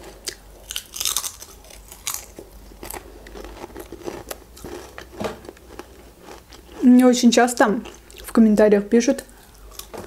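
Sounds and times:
crunchy chewing: 0.0s - 7.1s, 9.4s - 10.0s
potato crisp crunching: 0.0s - 8.4s, 9.4s - 10.0s.

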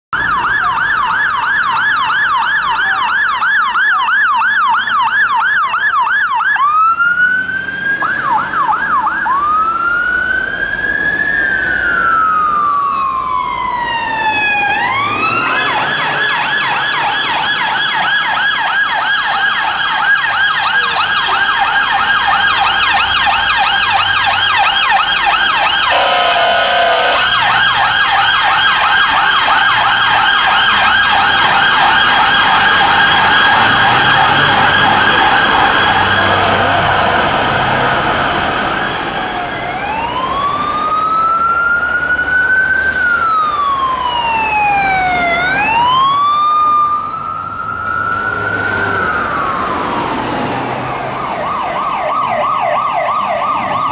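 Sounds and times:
fire engine siren: 0.1s - 53.9s
police car siren yelping: 0.2s - 53.9s
low bull horn blast: 25.9s - 27.4s.

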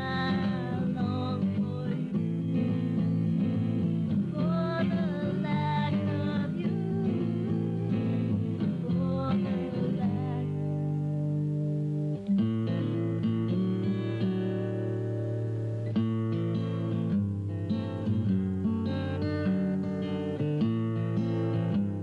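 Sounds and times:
person singing: 0.0s - 2.9s, 4.2s - 12.0s.

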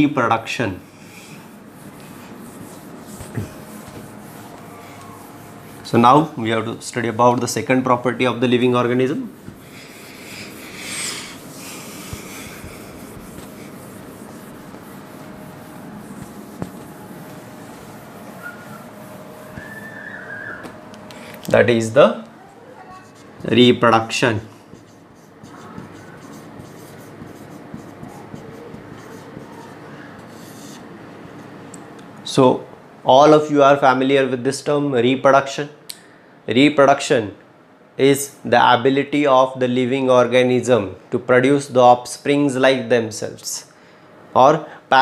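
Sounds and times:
whiteboard wiped with duster: 0.8s - 20.3s, 23.0s - 31.6s.

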